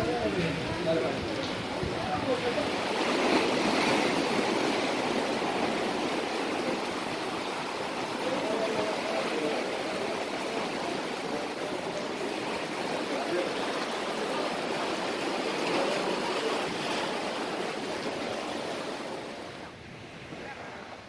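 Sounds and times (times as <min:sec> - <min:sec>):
rain falling on sea: 0:00.0 - 0:21.0
surf washing over rocks: 0:00.0 - 0:21.0.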